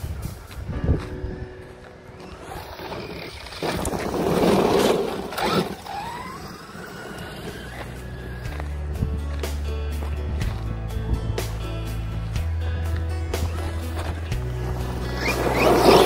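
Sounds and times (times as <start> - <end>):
tyres on loose gravel: 0.0 - 16.0
electric motor whining: 2.1 - 8.9, 13.5 - 16.0.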